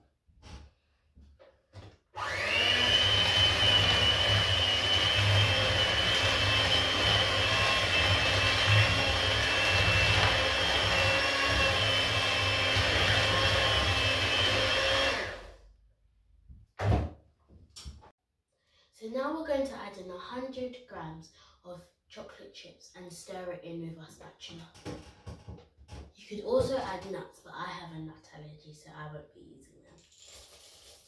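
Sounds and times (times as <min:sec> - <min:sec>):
electric hand mixer running: 0:02.2 - 0:15.6.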